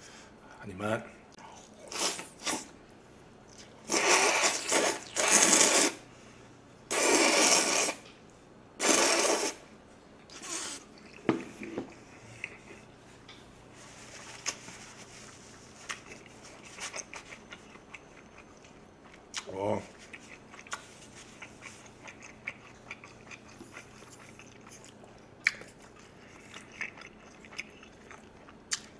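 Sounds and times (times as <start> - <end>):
noodles slurped: 3.8 - 6.0, 6.9 - 8.0
chewing with wet mouth clicks: 15.9 - 28.9.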